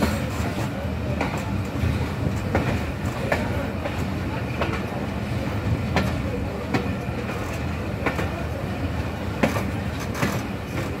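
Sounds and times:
train wheels rumbling on track: 0.0 - 11.0
wheels clacking over rail joints: 9.4 - 11.0.

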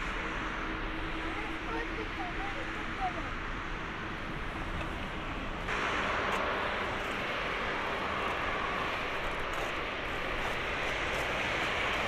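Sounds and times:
jet engines running: 0.0 - 12.0.

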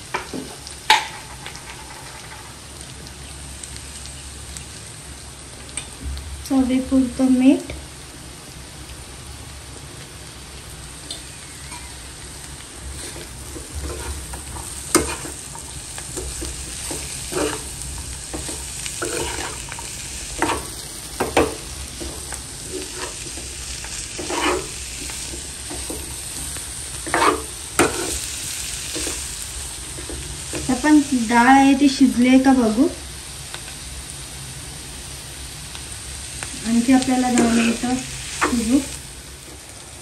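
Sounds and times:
low sizzle: 0.0 - 40.0
spoon scraping a pan: 11.1 - 12.0, 12.9 - 31.0, 37.2 - 39.0.

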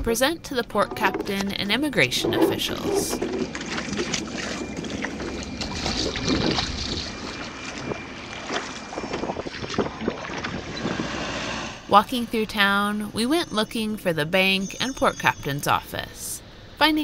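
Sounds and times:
oars knocking: 0.8 - 4.9
wind rumbling on microphone: 0.8 - 11.9
water washing and splashing: 2.3 - 11.6.

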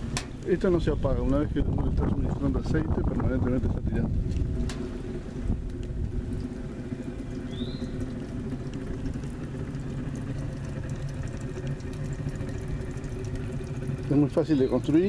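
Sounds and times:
short rising chirp: 7.4 - 8.0.

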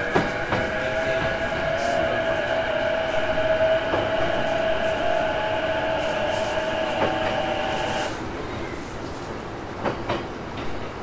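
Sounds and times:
train motors whining: 0.0 - 8.3
train wheels rumbling: 0.0 - 11.0.

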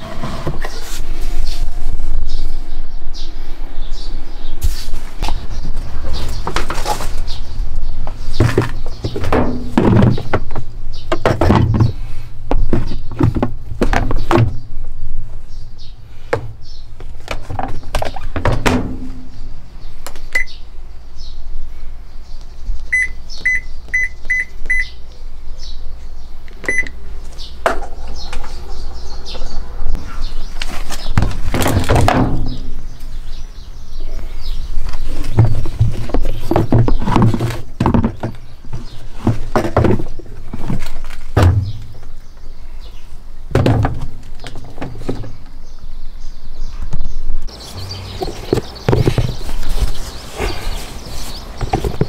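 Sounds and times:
knocks and thumps of handling: 5.2 - 7.4, 8.0 - 14.7, 16.3 - 19.3, 30.6 - 32.8, 34.8 - 42.1, 43.5 - 45.6, 48.1 - 52.0
washing machine panel beeping: 26.7 - 26.9.

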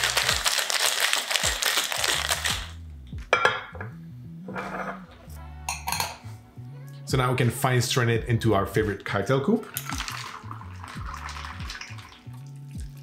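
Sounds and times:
ice rattling in cocktail shakers: 0.0 - 2.7, 9.6 - 12.2
glassware knocking on marble counter: 3.3 - 3.9, 5.7 - 6.2.

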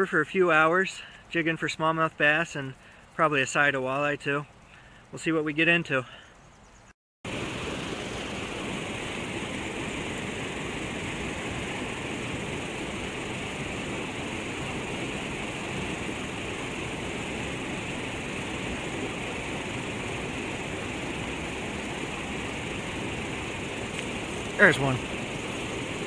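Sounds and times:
water rushing over a dam: 7.3 - 26.0.

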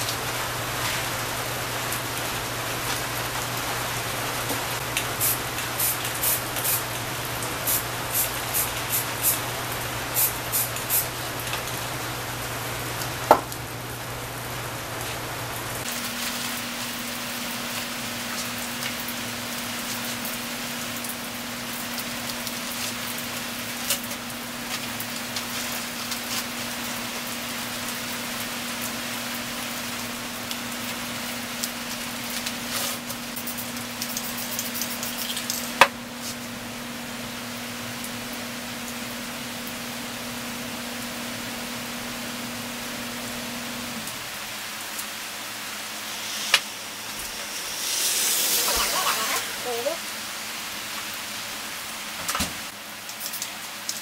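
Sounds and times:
spray paint can hissing: 5.2 - 6.8, 7.6 - 9.4, 10.2 - 11.1, 34.0 - 35.5, 45.7 - 50.0.

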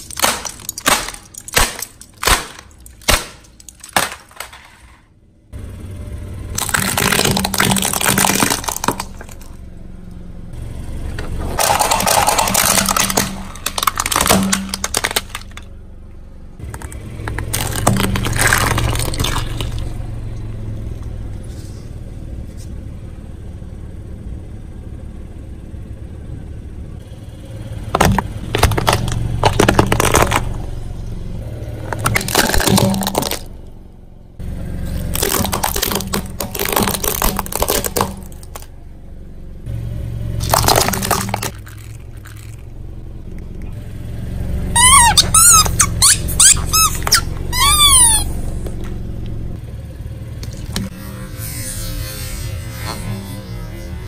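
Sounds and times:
tyre crushing brittle objects: 0.0 - 5.0, 6.6 - 9.6, 11.5 - 15.7, 16.6 - 20.0, 27.9 - 30.8, 31.8 - 33.5, 34.9 - 38.7, 40.4 - 42.7, 44.8 - 48.2
low engine hum: 0.0 - 54.0.

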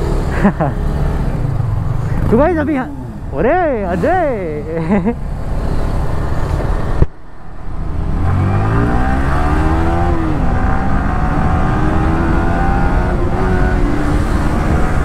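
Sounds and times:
motorcycle engine accelerating: 0.0 - 7.0, 7.7 - 15.0
wind rumble on microphone: 6.6 - 15.0.

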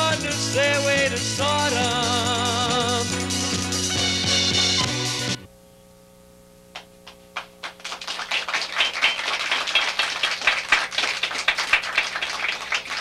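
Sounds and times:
low electrical hum: 5.4 - 13.0
audience applause: 7.6 - 13.0.

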